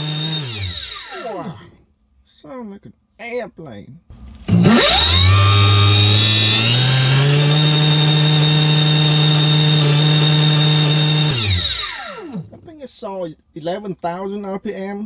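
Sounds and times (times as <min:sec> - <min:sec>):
electric motor whine: 0:00.0 - 0:01.6, 0:04.3 - 0:12.7.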